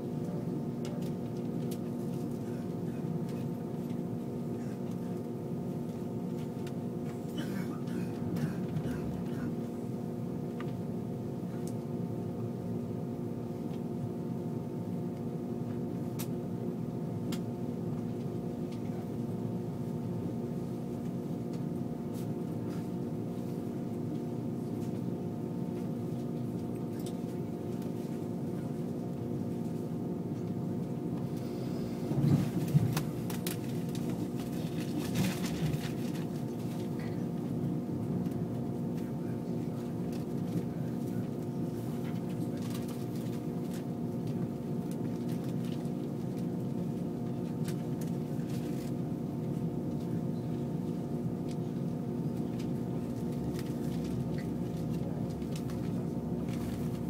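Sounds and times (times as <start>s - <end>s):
steady tonal hum: 0.0s - 57.0s
train running rumble: 31.2s - 37.2s.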